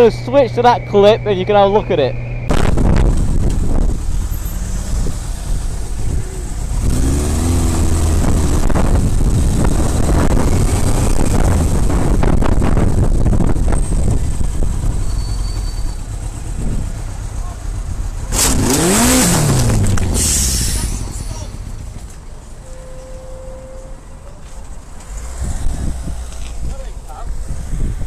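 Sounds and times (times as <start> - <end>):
wind rumble on microphone: 2.5 - 15.6, 16.3 - 17.1, 25.2 - 28.0
motorcycle engine running: 2.5 - 20.1.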